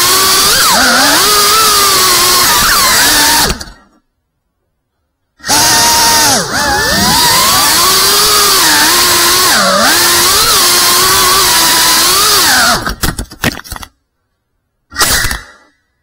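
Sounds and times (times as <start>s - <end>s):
drone motors whining: 5.4s - 12.9s.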